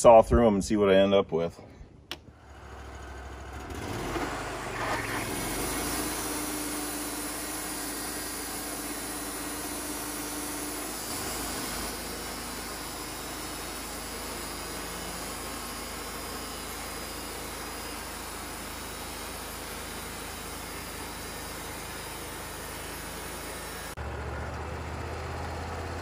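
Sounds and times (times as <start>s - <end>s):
band sawmill sawing wood: 2.4s - 24.0s.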